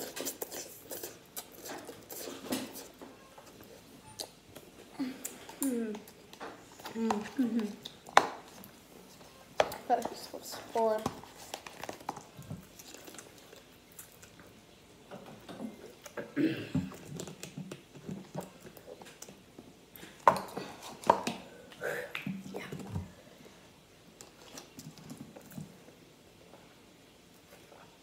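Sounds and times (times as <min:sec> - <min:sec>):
noodles slurped and chewed: 0:00.0 - 0:09.2.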